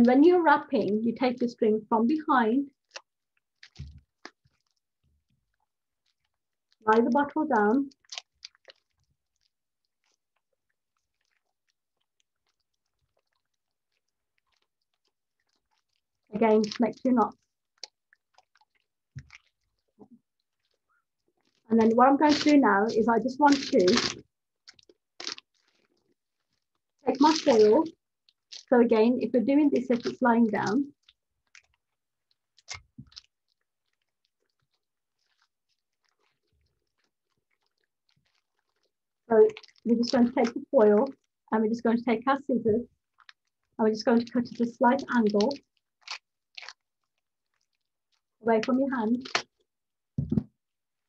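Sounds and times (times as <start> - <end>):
foil wrap crinkling: 21.4 - 27.9.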